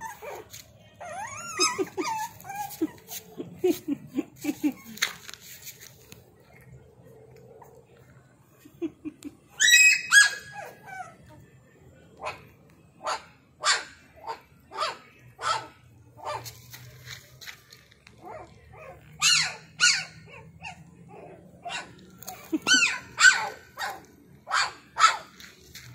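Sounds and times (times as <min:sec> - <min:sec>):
puppies yipping and barking: 0:00.0 - 0:08.1, 0:09.3 - 0:11.5, 0:12.2 - 0:25.9
puppy yelp rising and falling: 0:01.0 - 0:03.0, 0:09.6 - 0:11.2.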